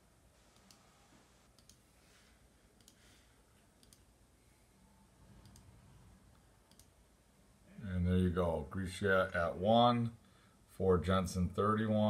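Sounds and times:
computer mouse clicks: 0:00.5 - 0:00.8, 0:01.5 - 0:01.9, 0:02.8 - 0:03.1, 0:03.8 - 0:04.1, 0:05.4 - 0:07.0.

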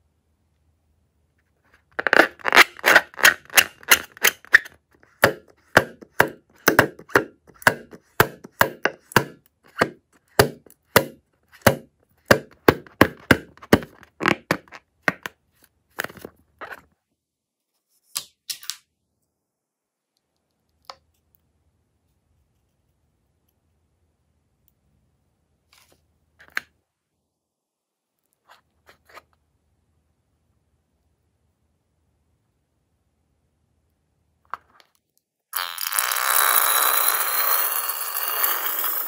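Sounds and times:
rubber balloon crackling: 0:01.8 - 0:15.2.

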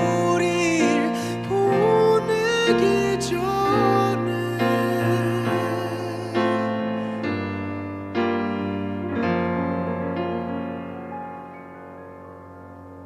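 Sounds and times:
person singing with vibrato: 0:00.0 - 0:08.0
soft piano chords: 0:00.0 - 0:13.0.

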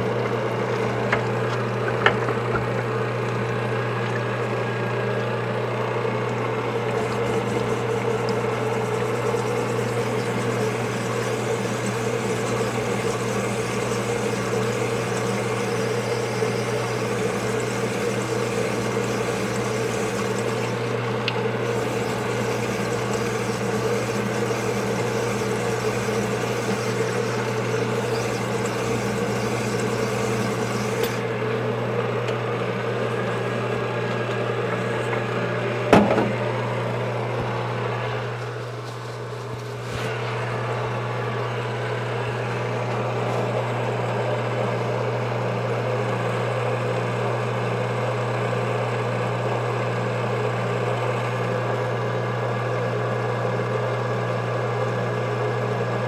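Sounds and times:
motor humming: 0:00.0 - 0:45.2
oil splashing: 0:06.7 - 0:31.3.

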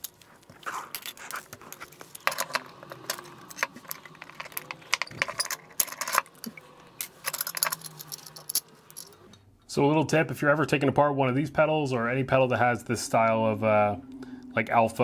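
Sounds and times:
clicks and rattles of metal hardware: 0:00.9 - 0:09.4.

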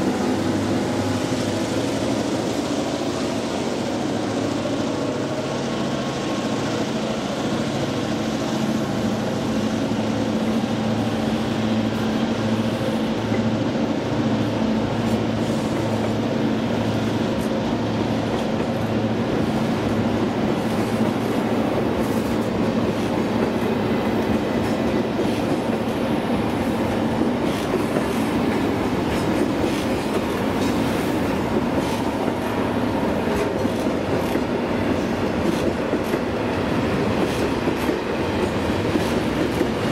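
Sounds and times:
train wheels clickety-clack: 0:00.0 - 0:39.9.

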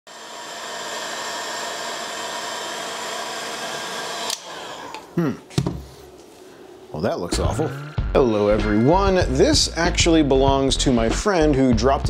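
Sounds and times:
heat gun blowing with whine: 0:00.1 - 0:05.1.

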